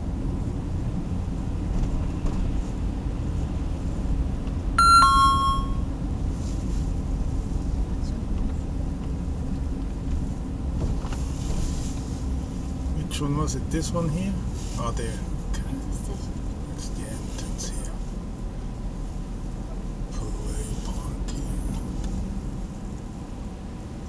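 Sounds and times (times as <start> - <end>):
engine and road rumble: 0.0 - 4.8, 5.6 - 24.0
two-note electronic chime: 4.8 - 5.8.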